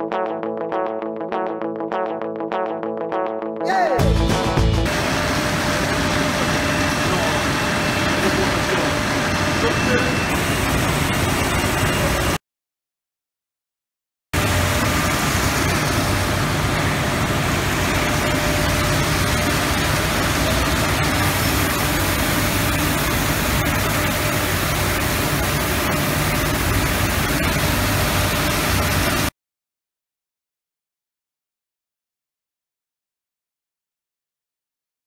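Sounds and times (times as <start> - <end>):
water flowing through flumes: 4.9 - 12.4, 14.4 - 29.3.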